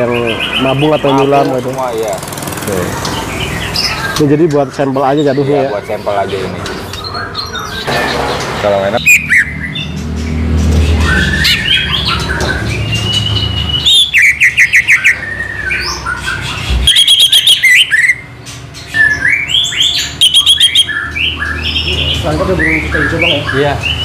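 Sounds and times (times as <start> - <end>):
bird fast trills: 0.0 - 24.0
bird whistles and chirps: 9.0 - 9.9, 10.9 - 24.0.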